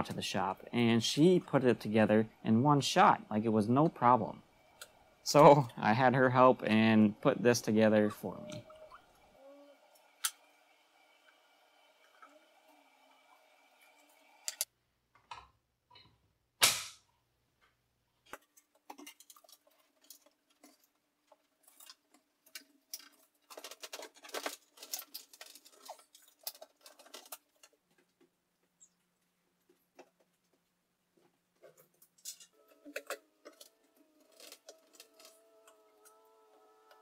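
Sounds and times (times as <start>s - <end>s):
clicks taps and rattles: 17.6s - 33.7s.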